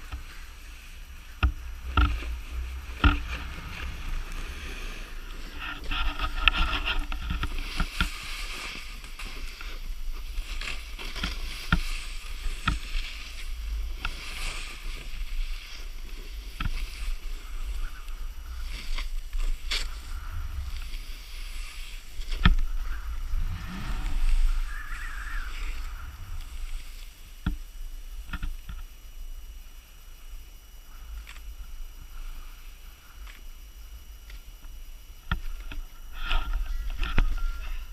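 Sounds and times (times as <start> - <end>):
snowboard hissing through snow: 0.0 - 28.3
low wind rumble: 0.0 - 34.1.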